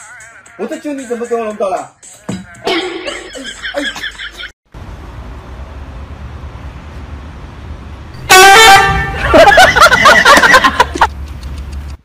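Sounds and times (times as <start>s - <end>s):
music: 0.0s - 3.6s
low outdoor rumble: 4.7s - 9.4s.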